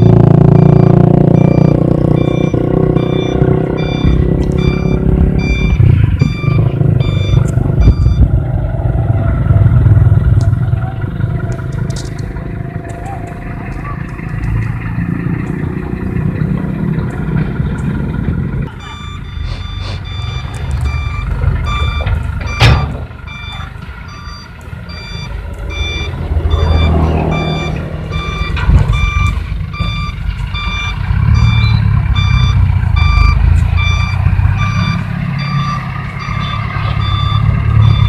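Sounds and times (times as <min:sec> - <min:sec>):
reversing alarm beeping: 0:00.0 - 0:10.0, 0:18.6 - 0:38.0
diesel engines running: 0:00.0 - 0:38.0.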